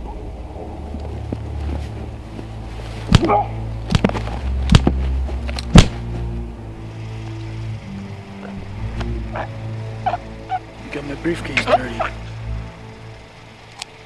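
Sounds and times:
low droning film score: 0.0 - 14.0
punches landing on a body: 3.1 - 5.0, 5.7 - 6.0.

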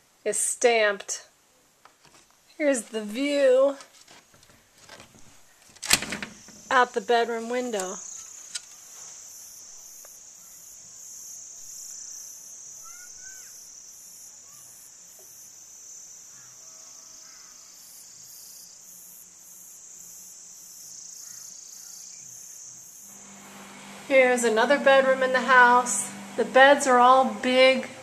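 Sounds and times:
insects chirring: 2.5 - 24.0.

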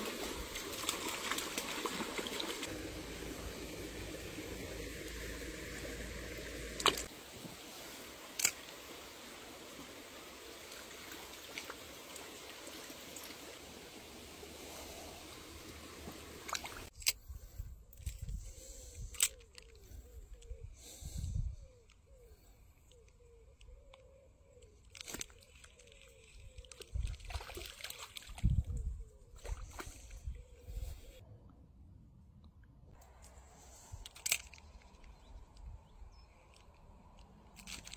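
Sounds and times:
fish splashing in water: 0.0 - 7.1, 25.0 - 28.4
stream trickling over rocks: 0.0 - 16.9.

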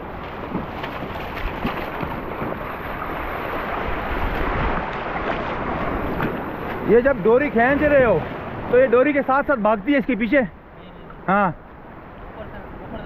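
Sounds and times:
sea water lapping on rocky shore: 0.0 - 8.9.

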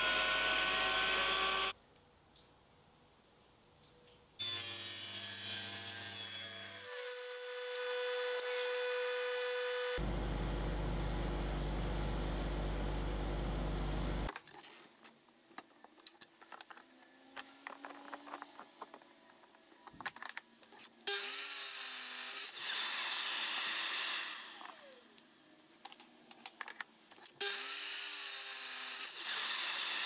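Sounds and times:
power saw cutting wood: 0.0 - 1.8, 4.4 - 10.0, 21.1 - 25.0, 27.4 - 30.0.

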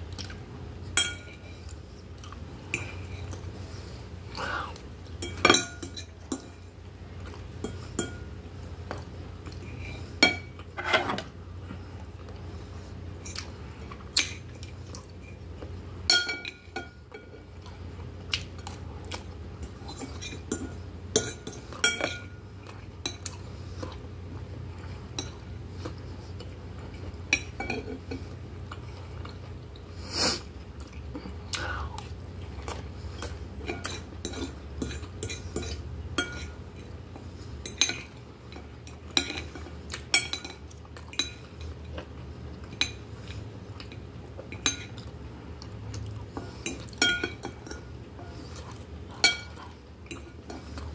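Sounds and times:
cutlery clinking on glass plate: 5.2 - 6.6, 16.1 - 17.4, 46.7 - 47.9, 49.2 - 50.4.

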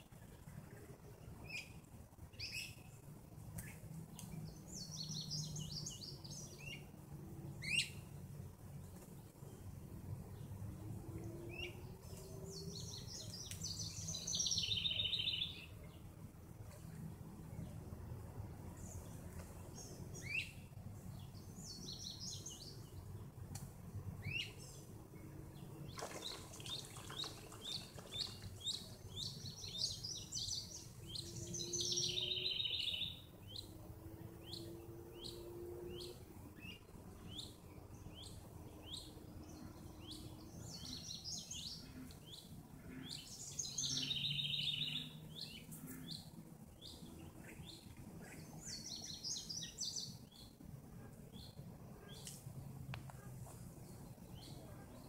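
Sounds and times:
birds chirping: 11.1 - 17.8, 18.6 - 23.3, 24.2 - 55.0
bird warbling song: 11.3 - 16.0, 25.6 - 33.8, 34.4 - 50.6.

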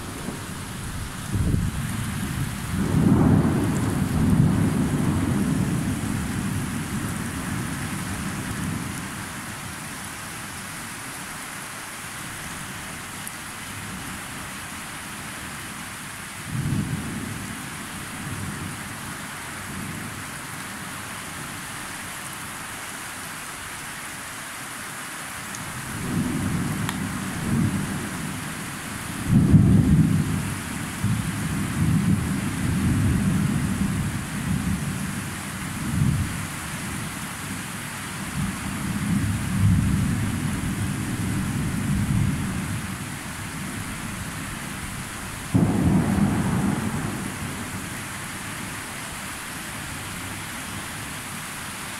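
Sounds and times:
thunder rumbling: 0.0 - 8.9, 44.9 - 48.7
rain hissing: 0.0 - 11.4, 30.1 - 51.9.

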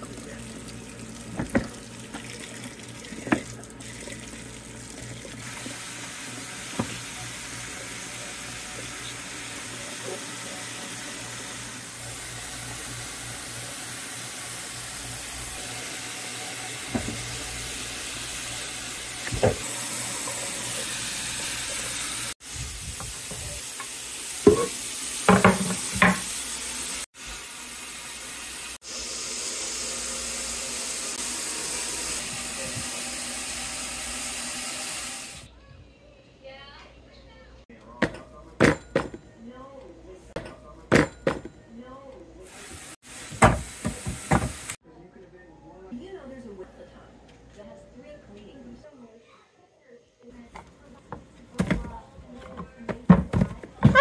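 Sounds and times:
tap water running into sink: 0.0 - 9.5, 12.4 - 27.0, 43.2 - 44.8.

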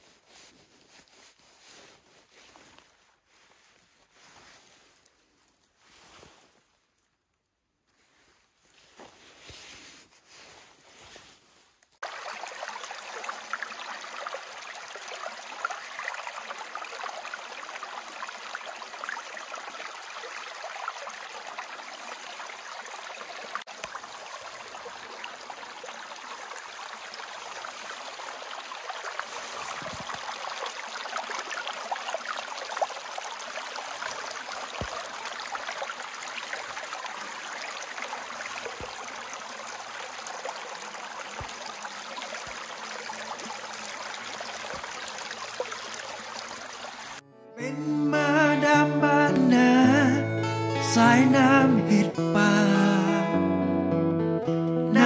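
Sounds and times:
stream flowing over rocks: 12.0 - 47.2.

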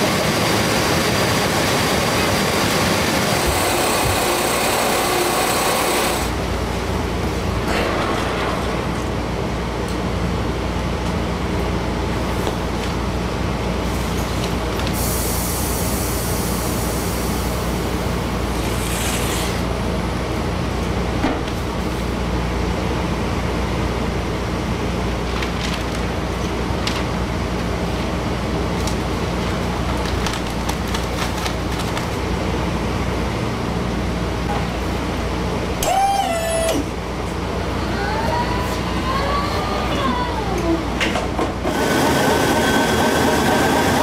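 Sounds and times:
paper machinery humming: 0.0 - 44.0
hiss: 14.9 - 17.9.

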